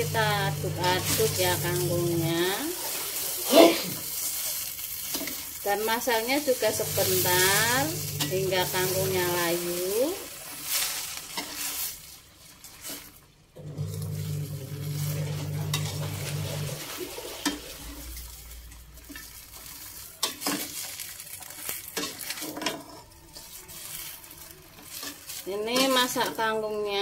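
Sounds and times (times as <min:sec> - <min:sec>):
low steady hum: 0:00.0 - 0:02.3
sauce sizzling: 0:00.0 - 0:22.3.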